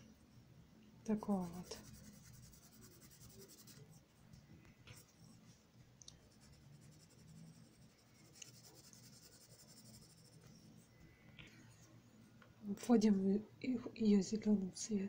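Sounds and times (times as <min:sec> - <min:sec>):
pencil scratching on paper: 0:01.2 - 0:04.0, 0:06.3 - 0:10.5.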